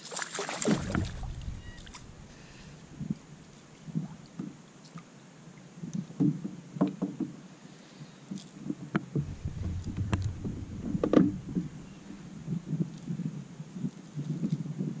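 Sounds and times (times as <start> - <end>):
low rumble: 0.6 - 4.3, 9.2 - 13.0.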